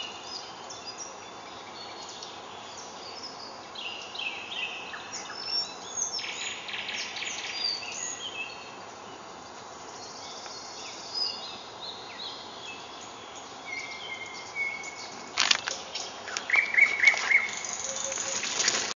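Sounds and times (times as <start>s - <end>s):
songbirds chirping and trilling: 0.0s - 18.9s
steady background hiss: 0.0s - 19.0s
camera handling rustles and clicks: 15.3s - 17.4s.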